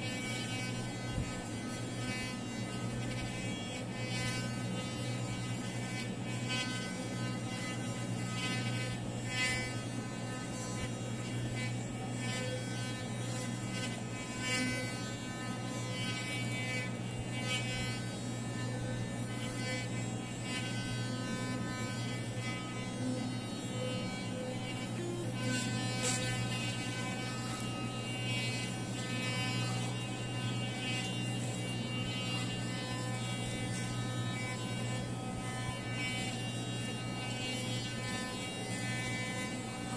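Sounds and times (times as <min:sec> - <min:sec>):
electric toothbrush buzzing: 0:00.0 - 0:39.9.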